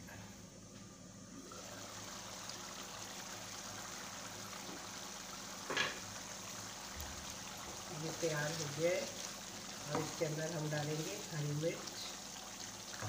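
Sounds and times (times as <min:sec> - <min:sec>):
curry bubbling in pot: 0:01.4 - 0:13.0.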